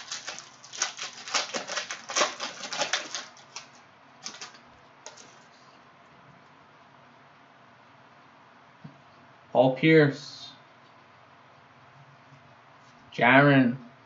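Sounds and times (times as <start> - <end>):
cellophane wrapper crinkling: 0.0 - 5.6.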